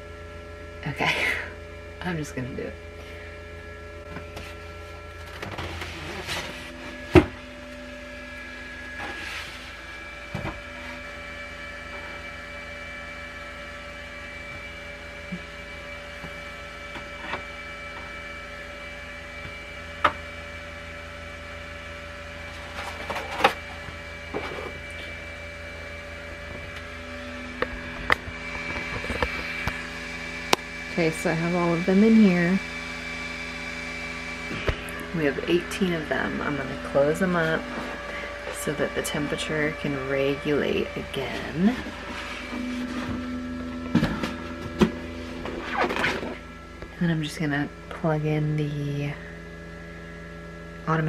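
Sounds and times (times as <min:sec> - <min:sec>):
steady electrical hum: 0:00.0 - 0:51.0.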